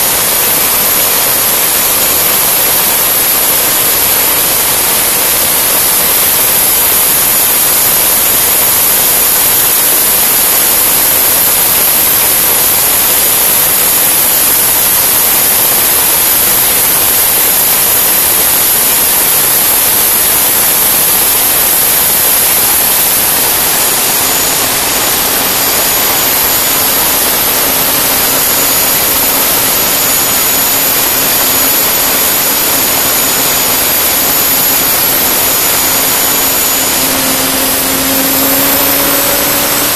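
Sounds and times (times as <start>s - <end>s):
gas turbine rush and whine: 0.0s - 39.9s
low hum: 20.1s - 39.9s.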